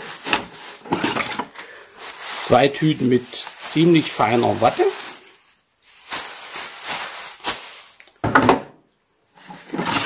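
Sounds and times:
plastic basket handled: 0.0 - 5.3
plastic bags rustling: 0.0 - 8.3.

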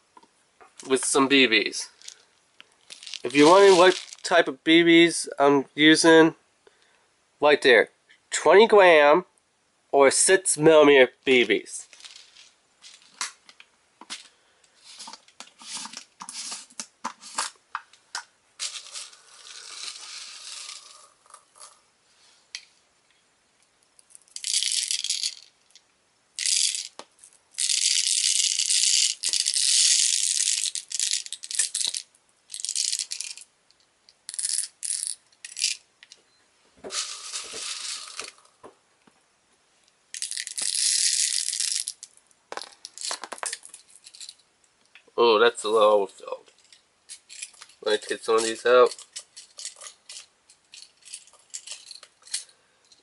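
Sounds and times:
plastic pellets rattling into tube: 1.0 - 4.5, 11.9 - 13.4, 18.6 - 21.8, 24.0 - 25.8, 26.4 - 33.5, 34.2 - 35.8, 36.9 - 38.6, 40.1 - 44.4, 46.6 - 52.5.

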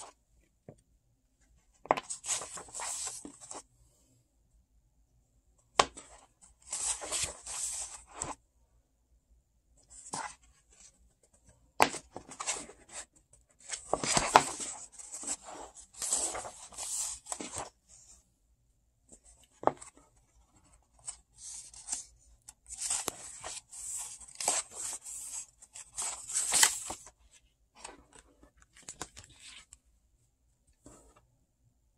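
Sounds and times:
book pages rustling: 1.8 - 3.6, 5.8 - 8.4, 9.9 - 18.2, 19.1 - 29.8.

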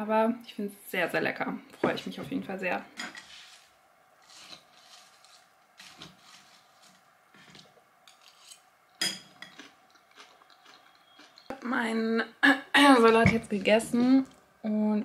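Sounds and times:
fork scraping glass bowl: 3.0 - 9.6.

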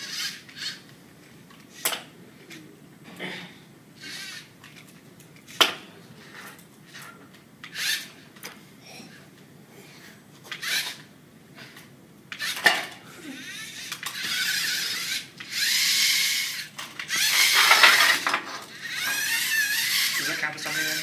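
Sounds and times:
electric motors whining: 0.0 - 0.9, 4.0 - 4.9, 6.2 - 8.2, 10.5 - 11.1, 12.3 - 21.0
metal parts rattling: 17.2 - 21.0.

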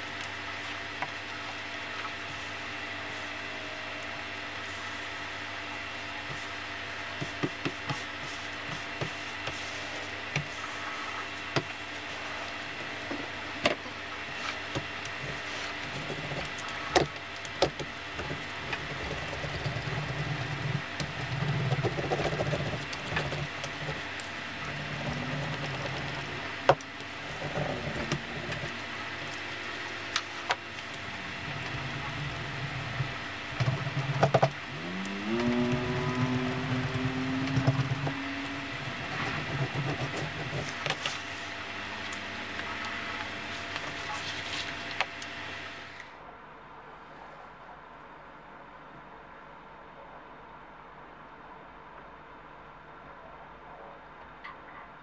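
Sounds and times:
steady hum: 0.0 - 55.0
hand roller rolling over hide: 18.2 - 29.4, 30.4 - 41.5.

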